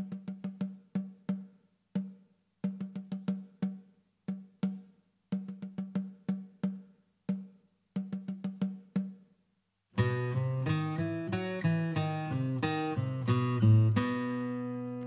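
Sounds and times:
solo drum rhythm: 0:00.0 - 0:09.4.

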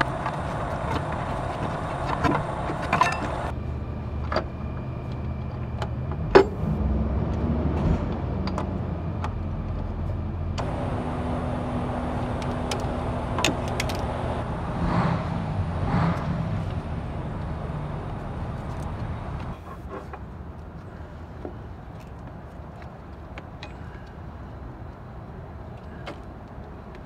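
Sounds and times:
low shop rumble: 0:00.0 - 0:19.9
belt clicking and knocking on pulleys: 0:12.2 - 0:14.4.

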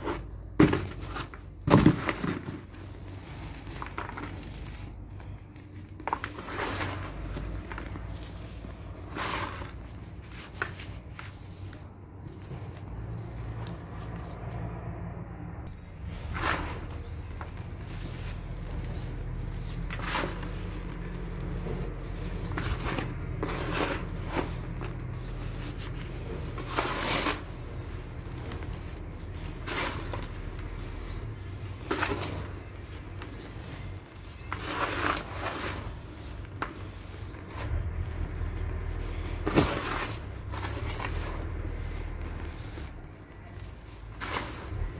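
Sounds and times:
cement lumps crushed by hand: 0:00.0 - 0:05.1, 0:16.2 - 0:44.9.

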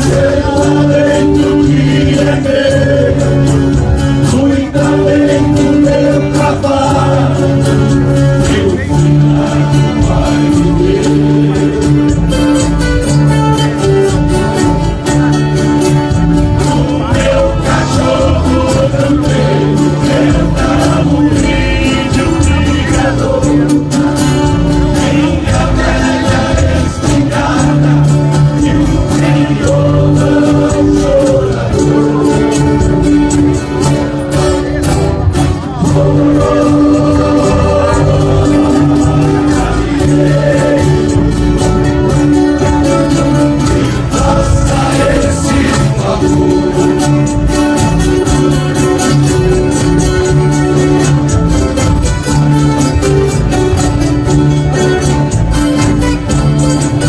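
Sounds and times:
men singing together: 0:00.0 - 0:12.8, 0:16.3 - 0:34.2, 0:35.7 - 0:49.8
plucked acoustic guitars: 0:00.0 - 0:57.0.

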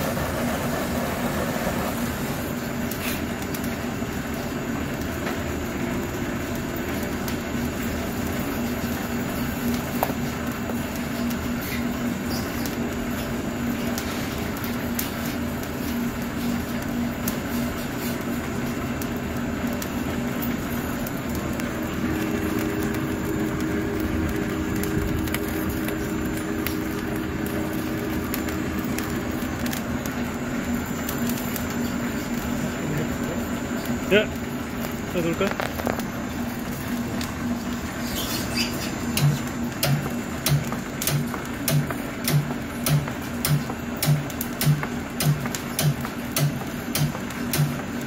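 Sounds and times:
dense noise: 0:00.0 - 0:03.2, 0:19.9 - 0:38.6
extruder motor hum: 0:00.0 - 0:03.5, 0:18.8 - 0:42.6.

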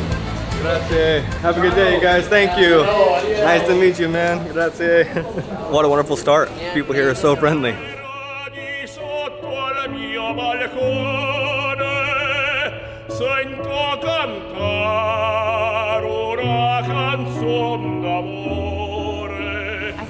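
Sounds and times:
sustained bass notes: 0:00.0 - 0:03.5
opera-style singing: 0:07.3 - 0:20.0.

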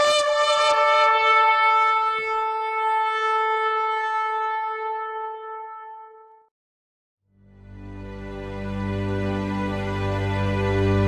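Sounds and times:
shofar long note: 0:00.0 - 0:06.5.

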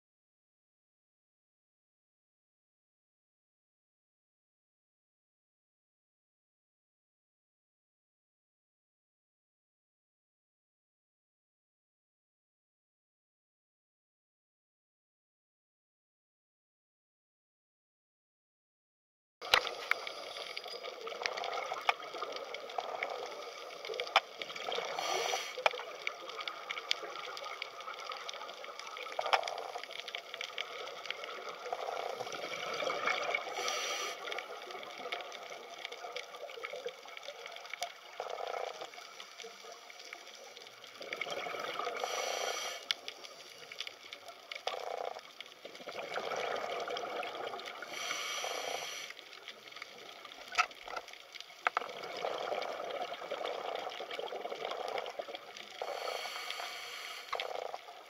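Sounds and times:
underwater bubbling: 0:19.4 - 0:58.0
rush of exhaled bubbles: 0:19.8 - 0:36.9, 0:40.9 - 0:42.8, 0:44.7 - 0:49.1, 0:51.8 - 0:58.0.

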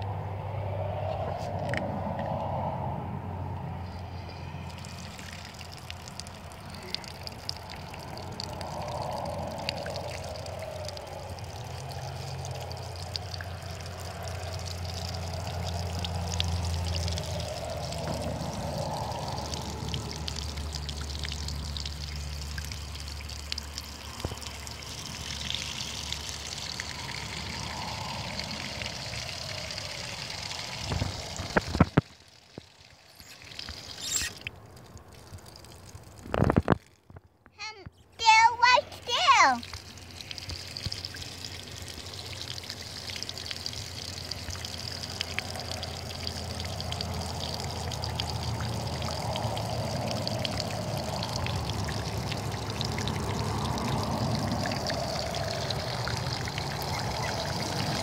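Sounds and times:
water pouring and splashing: 0:00.8 - 0:03.0, 0:03.8 - 0:37.4, 0:38.2 - 0:58.0.

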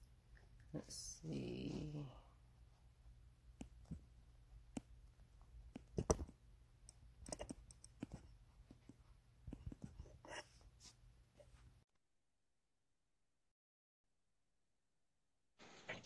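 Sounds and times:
faint low hum: 0:00.0 - 0:11.8
fingers tapping smartphone: 0:05.6 - 0:10.4.

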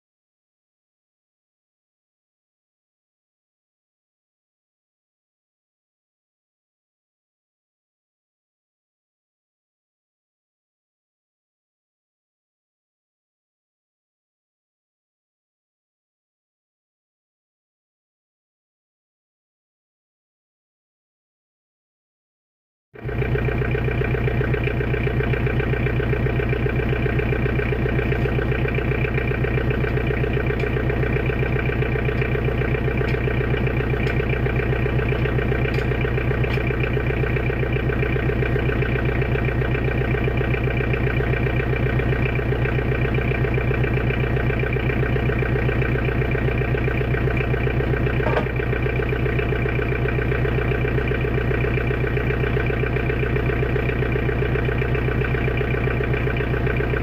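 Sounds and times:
diesel engine idling: 0:23.0 - 0:57.0.

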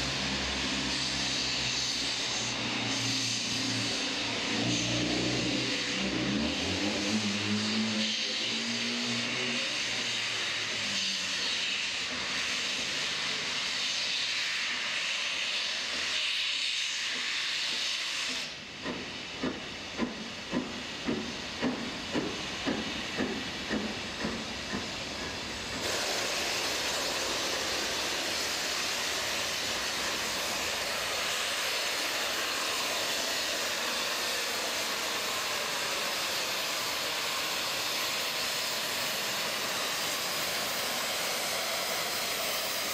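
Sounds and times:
steam locomotive hissing: 0:00.0 - 0:42.9.

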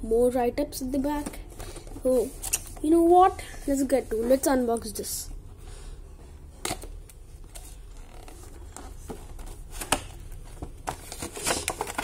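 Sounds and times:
plastic and cardboard crackling: 0:06.6 - 0:12.0.

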